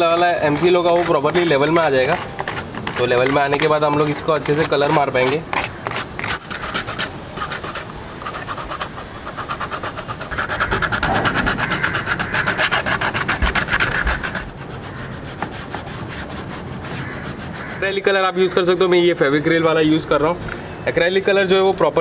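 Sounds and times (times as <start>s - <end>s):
sandpaper rubbing on plastic: 0.0s - 18.2s
cloth wiping: 6.2s - 17.8s.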